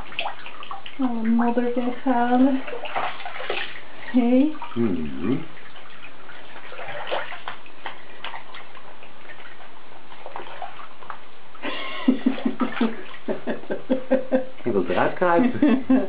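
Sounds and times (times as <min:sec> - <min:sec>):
bathtub water sloshing and splashing: 0:00.0 - 0:16.0
person's voice: 0:01.0 - 0:02.6, 0:14.7 - 0:15.8.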